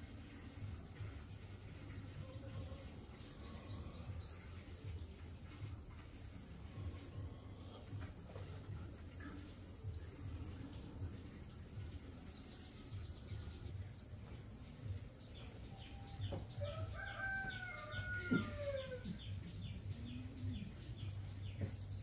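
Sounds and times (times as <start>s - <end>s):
rooster crowing: 16.6s - 19.1s.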